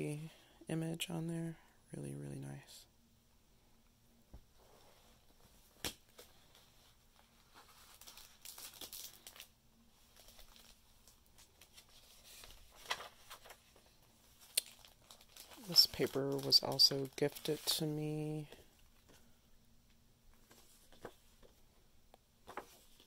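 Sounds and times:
paper pages turning: 5.8 - 9.5, 10.1 - 19.2, 20.4 - 21.6, 22.4 - 23.0.

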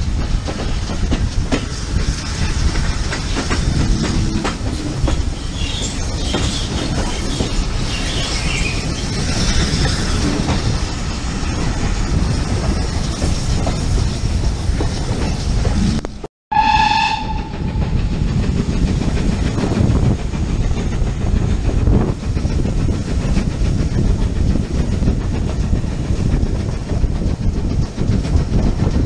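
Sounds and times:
train rumbling along track: 0.0 - 29.0
steam locomotive whistle blast: 16.5 - 17.8.

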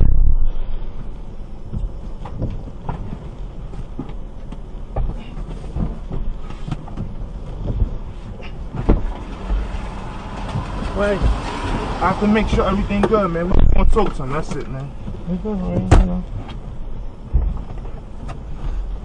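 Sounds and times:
low rumble inside car: 0.0 - 19.0
knocks and thumps: 1.6 - 16.6, 17.2 - 18.8.

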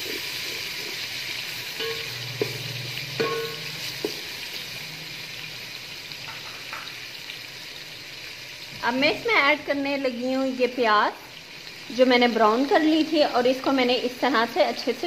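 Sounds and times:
food sizzling in hot oil: 0.0 - 15.0
spoon clinking against pot: 1.8 - 2.6, 3.2 - 4.2.

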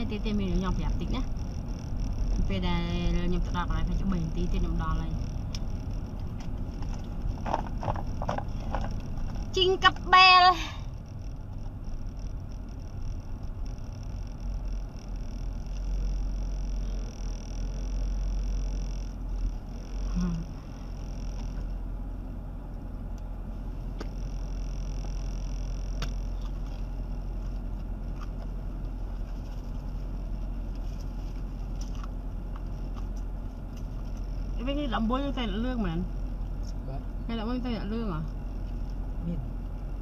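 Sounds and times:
thin high whine: 0.0 - 8.3, 9.0 - 21.9, 23.5 - 27.8
car cabin engine rumble: 0.0 - 40.0.

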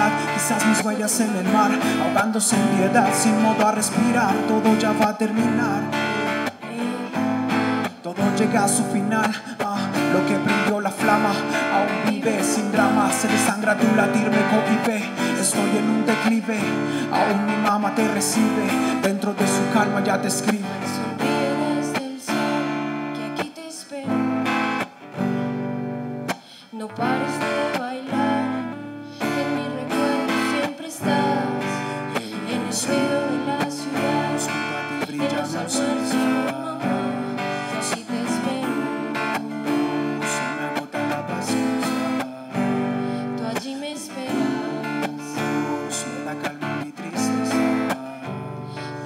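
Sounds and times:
strummed acoustic guitar: 0.0 - 49.0.

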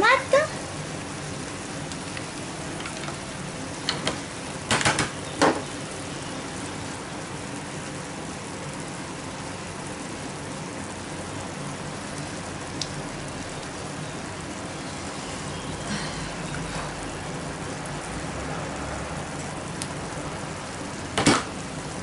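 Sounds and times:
meat sizzling in a frying pan: 0.0 - 22.0
sharp clicks and knocks: 3.9 - 5.6, 21.2 - 21.5.

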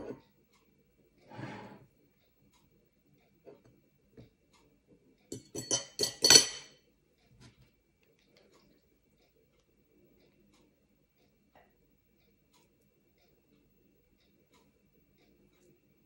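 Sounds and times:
metal spoon clinking against glass: 5.3 - 6.7.

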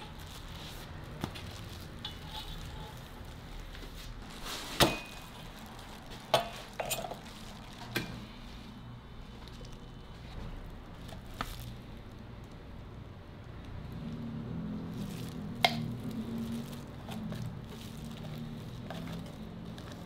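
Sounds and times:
spatula scraping spread on crepe: 0.0 - 5.5, 16.2 - 20.0.

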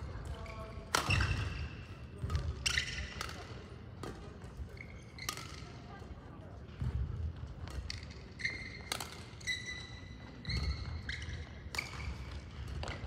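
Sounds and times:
shoes squeaking on court floor: 0.0 - 5.8, 6.8 - 13.0
rackets striking shuttlecock: 0.2 - 4.4, 5.2 - 5.8, 7.6 - 9.5.

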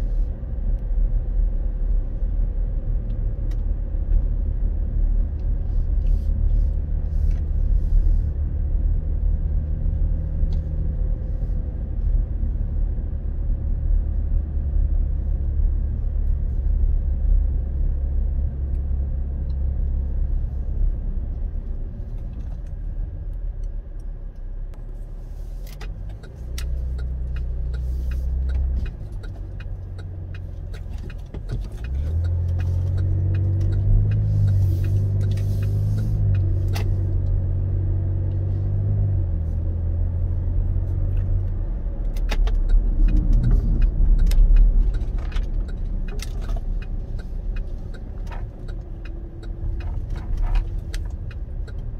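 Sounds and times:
car engine and road noise: 0.0 - 51.9
regular ticking: 25.8 - 35.7, 42.5 - 51.9.

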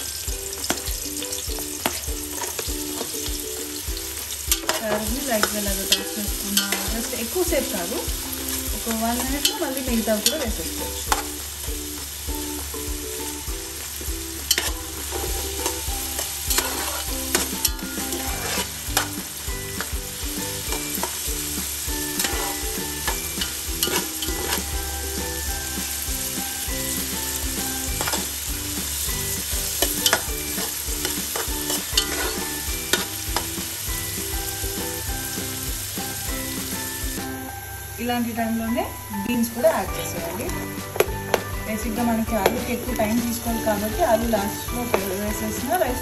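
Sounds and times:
vegetables sizzling in hot oil: 0.0 - 46.0
spoon clinking and scraping pot: 0.6 - 11.4, 14.4 - 34.7.

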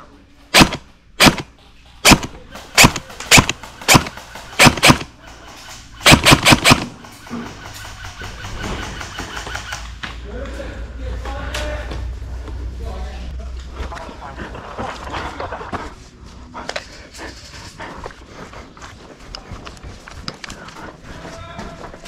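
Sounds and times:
airsoft guns firing: 0.5 - 10.0.

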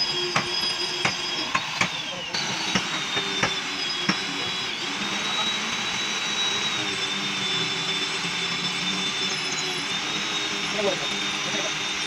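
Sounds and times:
pneumatic impact wrench whine: 0.0 - 12.0.

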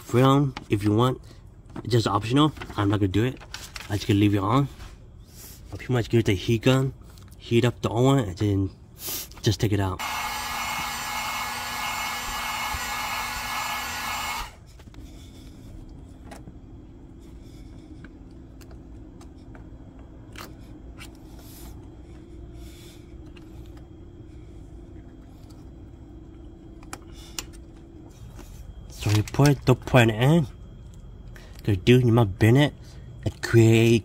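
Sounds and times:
low steady hum: 0.0 - 34.0
heat gun blowing air: 10.0 - 14.6.

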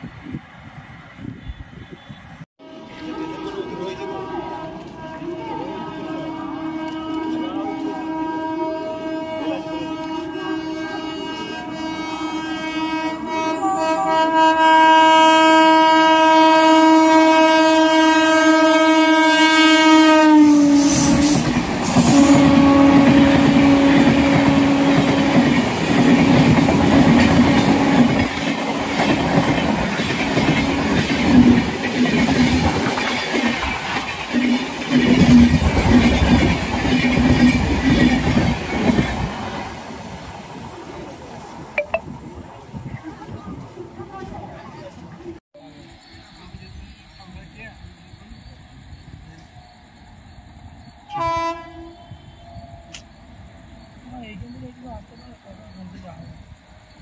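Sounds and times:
locomotive horn blast: 1.4 - 29.0, 51.1 - 52.6
train wheels clattering on rails: 20.9 - 39.8.

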